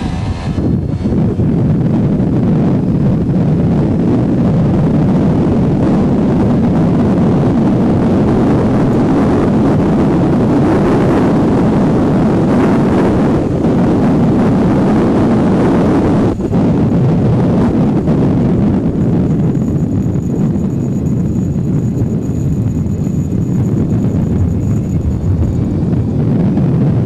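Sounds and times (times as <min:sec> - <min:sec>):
wind rush on microphone: 0:00.0 - 0:27.0
moped engine running: 0:19.0 - 0:26.1.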